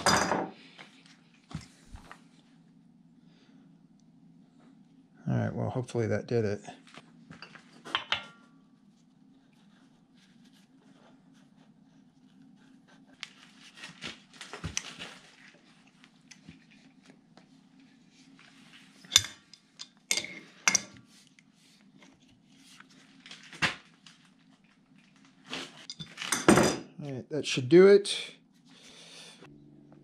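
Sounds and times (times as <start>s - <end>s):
faint low hum: 0.6s - 26.1s, 26.9s - 30.0s
metal tools clinking and clanking: 19.0s - 21.0s, 25.8s - 26.9s.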